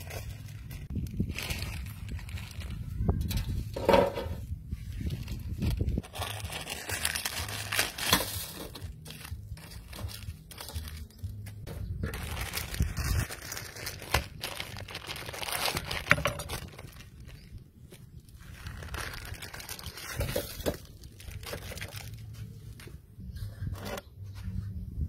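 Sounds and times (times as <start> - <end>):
plastic packets crinkling and tearing: 0.0 - 3.4, 4.9 - 22.9.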